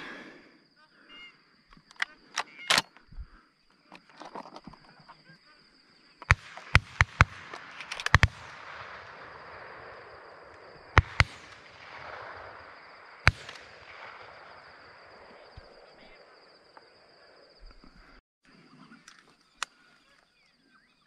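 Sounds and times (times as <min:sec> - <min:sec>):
shotgun shots echoing: 0:06.2 - 0:17.2.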